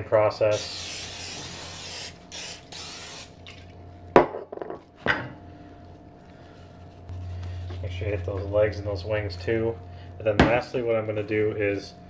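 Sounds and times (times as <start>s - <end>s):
aerosol can spray hissing: 0.5s - 3.3s.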